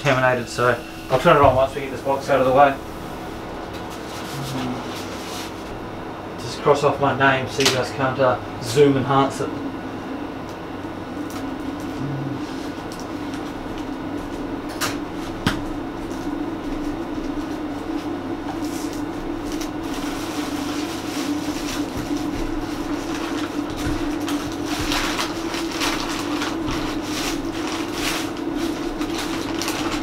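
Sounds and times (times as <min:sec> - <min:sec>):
low machine hum: 0:00.0 - 0:30.0
packing paper crinkling: 0:18.6 - 0:30.0
plastic bag rustling: 0:18.6 - 0:30.0.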